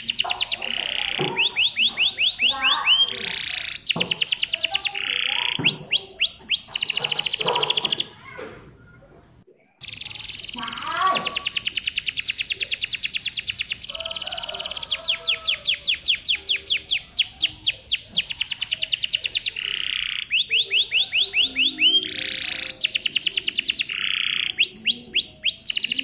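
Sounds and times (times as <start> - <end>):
canary singing trills: 0.0 - 8.4, 9.8 - 26.0.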